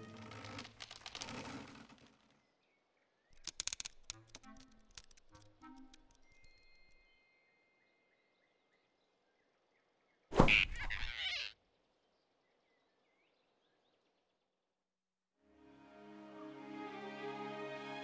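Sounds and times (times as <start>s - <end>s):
cartoon whoosh and thud: 10.3s - 11.2s.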